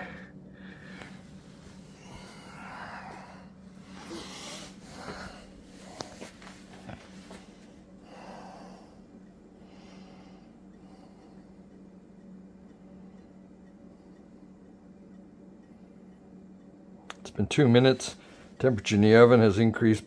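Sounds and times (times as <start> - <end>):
person breathing softly: 0.0 - 11.7
steady low hum: 0.0 - 20.0.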